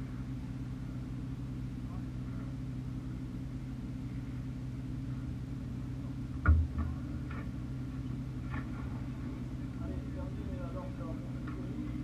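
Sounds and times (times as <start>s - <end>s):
buggy engine idling: 0.0s - 12.0s
sharp thump: 6.4s - 7.5s.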